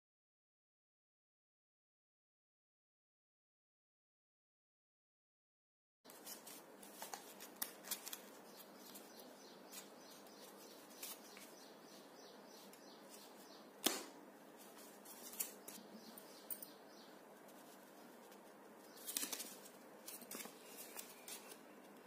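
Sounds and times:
paper crackling and tapping: 6.1 - 11.6, 17.6 - 22.0.

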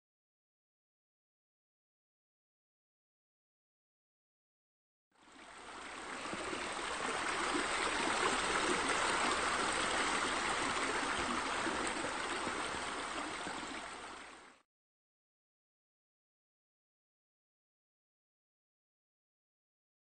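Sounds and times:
flowing splashing water: 5.2 - 14.6.

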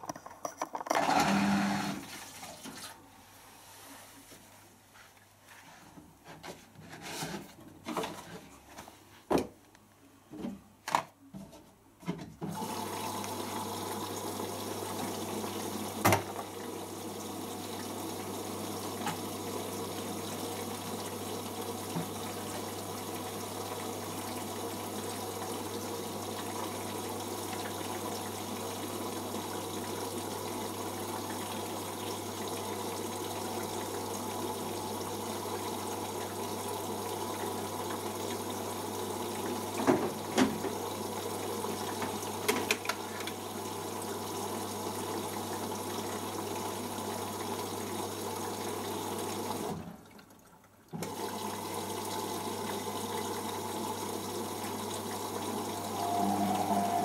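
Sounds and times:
washing machine filling with water: 1.0 - 3.1, 12.2 - 57.0
low hum: 55.7 - 57.0.

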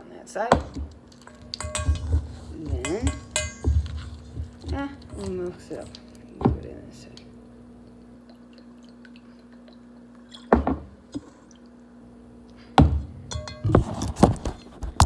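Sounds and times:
faint steady hum: 0.0 - 15.0
plastic spoons clattering on metal bowl: 0.6 - 6.2.

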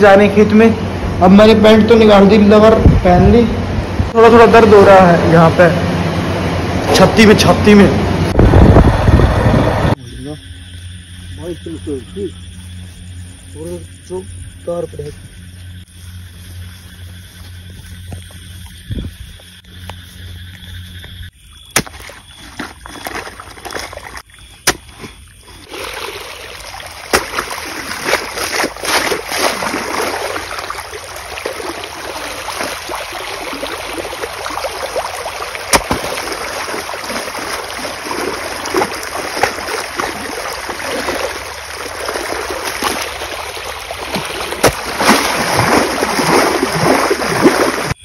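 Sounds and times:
shovel striking wet soil: 21.7 - 25.2, 27.1 - 30.1, 35.6 - 36.4, 38.7 - 40.1, 44.1 - 47.0
water rushing and splashing: 21.8 - 48.0.

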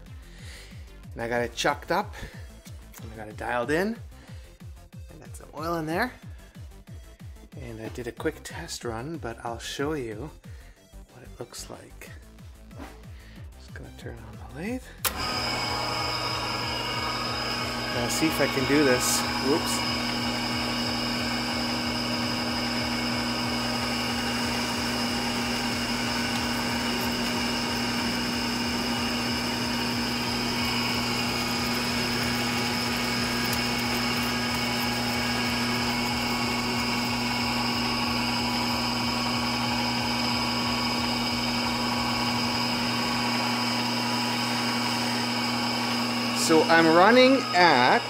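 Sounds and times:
metal lathe hum and whine: 15.1 - 48.0.

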